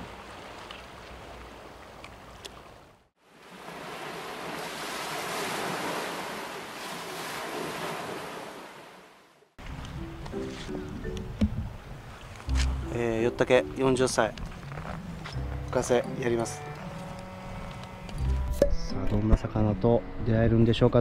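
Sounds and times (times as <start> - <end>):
faint wind: 0.0 - 21.0
surf washing onto shore: 3.3 - 9.1.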